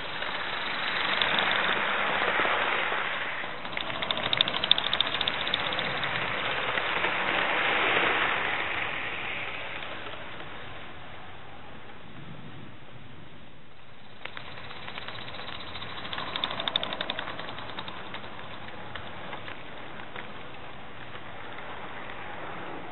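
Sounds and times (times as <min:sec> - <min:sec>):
rapid sharp clicks: 0:00.0 - 0:01.8, 0:03.5 - 0:06.9, 0:14.0 - 0:21.2.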